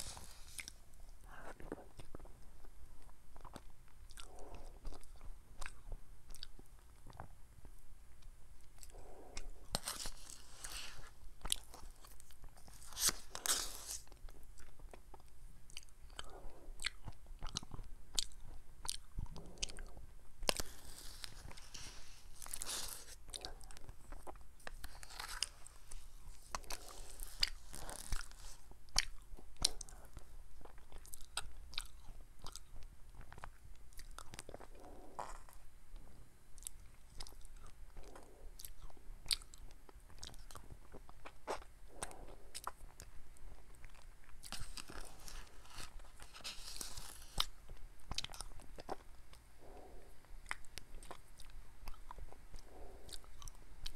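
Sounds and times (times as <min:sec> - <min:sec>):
mouth eating smacks and clicks: 0:46.9 - 0:53.9.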